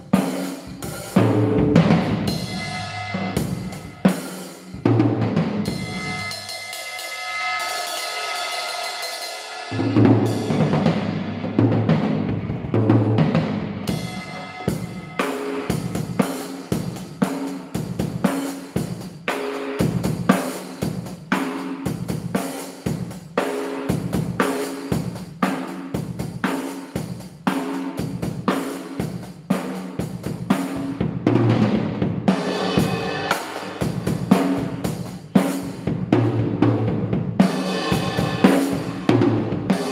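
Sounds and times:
drum beat with sticks: 0.0s - 39.9s
cymbal crash ringing: 2.2s - 4.8s, 5.6s - 11.3s, 13.8s - 17.5s, 32.4s - 34.3s.

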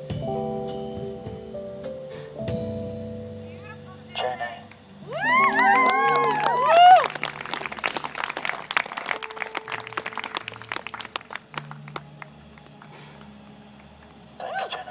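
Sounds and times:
small crowd clapping: 5.2s - 14.2s.

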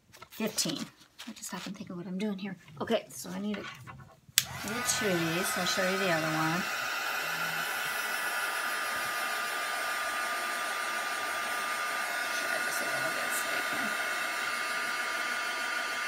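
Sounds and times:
hair dryer running: 4.4s - 16.0s.

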